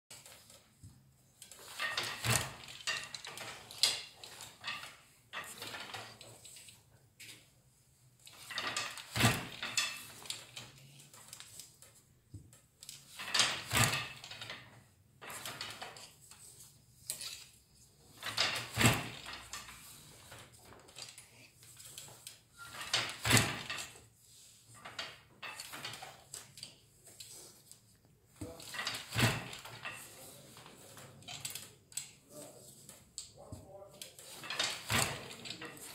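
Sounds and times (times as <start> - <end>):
wooden loom parts clattering: 0.1 - 7.5, 8.1 - 35.9.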